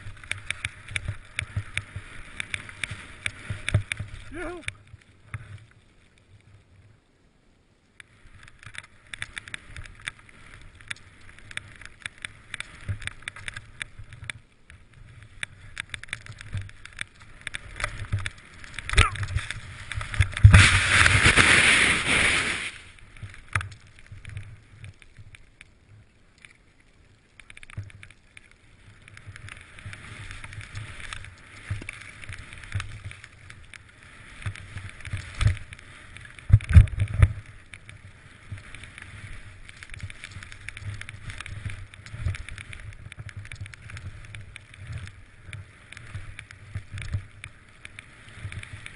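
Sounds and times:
low wind rumble: 0:00.0 - 0:26.4
skis swishing through powder snow: 0:17.1 - 0:23.1, 0:28.8 - 0:36.4, 0:37.3 - 0:48.9.

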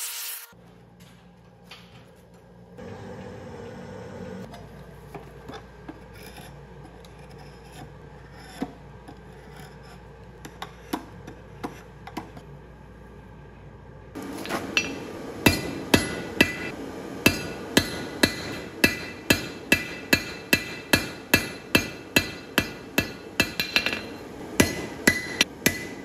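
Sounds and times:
drawknife scraping wood: 0:06.0 - 0:10.1
hammer striking steel on anvil: 0:14.4 - 0:26.0.

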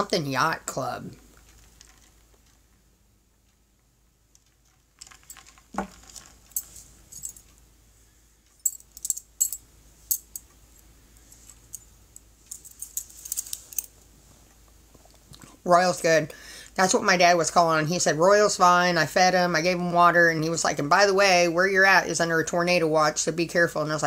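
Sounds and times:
small hard objects clicking and rattling: 0:01.3 - 0:02.7, 0:04.3 - 0:07.5.

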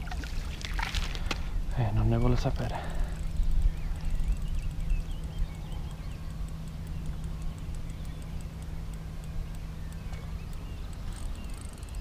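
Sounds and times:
faint bird chirps: 0:01.8 - 0:12.0
fishing reel ticking: 0:03.2 - 0:12.0.

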